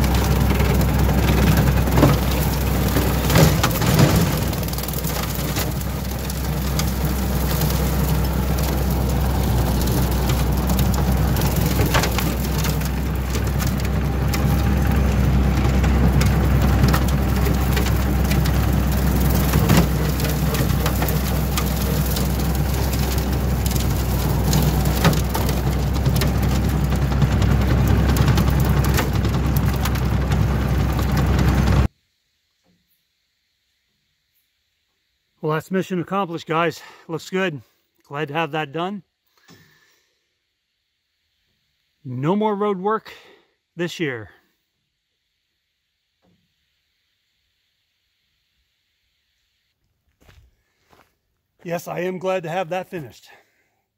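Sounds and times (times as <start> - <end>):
sharp cracks: 0.0 - 31.8
rotary cutter shredding brush: 0.0 - 31.9
tractor diesel engine: 0.0 - 31.9.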